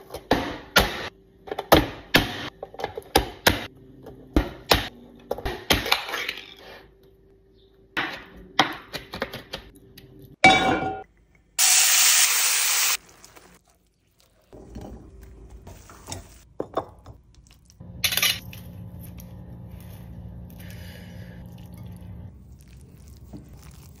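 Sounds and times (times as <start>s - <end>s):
steady low hum: 17.8s - 23.2s.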